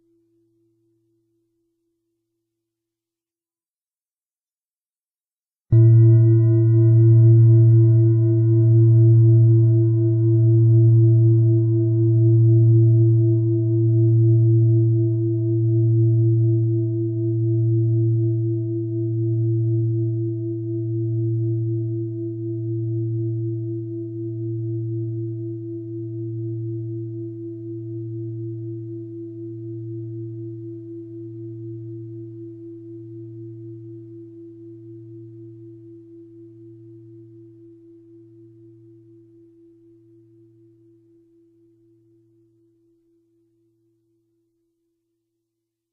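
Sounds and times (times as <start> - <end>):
bell ringing with deep hum: 5.8 - 11.5.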